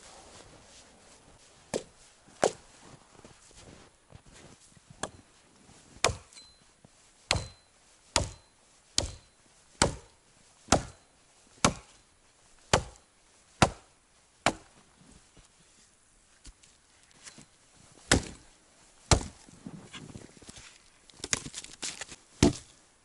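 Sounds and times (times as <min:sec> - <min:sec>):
axe chopping wood: 0:06.0 - 0:06.4, 0:07.3 - 0:07.6, 0:08.2 - 0:11.0, 0:11.6 - 0:11.9, 0:12.7 - 0:13.0, 0:13.6 - 0:14.7, 0:18.1 - 0:18.4, 0:19.1 - 0:19.4, 0:21.2 - 0:22.7.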